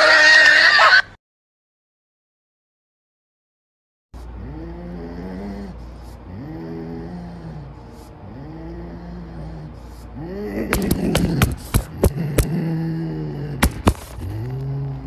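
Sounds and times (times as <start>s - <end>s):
wild cat growling: 4.2s - 15.0s.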